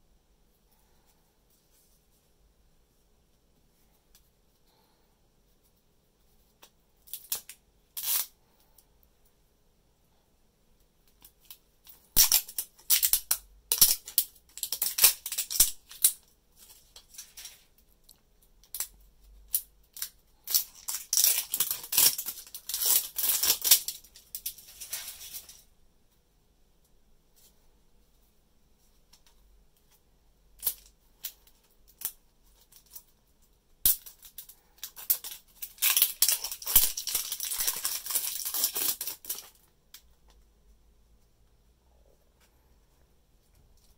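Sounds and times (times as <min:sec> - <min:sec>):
plastic film crinkling: 0:11.2 - 0:18.9, 0:19.5 - 0:25.7, 0:33.9 - 0:39.7.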